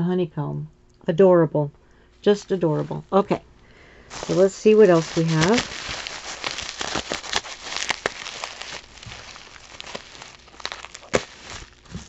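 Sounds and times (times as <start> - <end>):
bubble wrap crinkling: 4.1 - 12.0.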